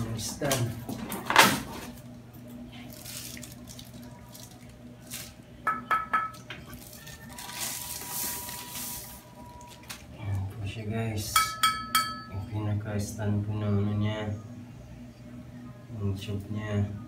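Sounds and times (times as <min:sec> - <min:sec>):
plastic rustling: 0:02.8 - 0:05.4, 0:06.6 - 0:10.2.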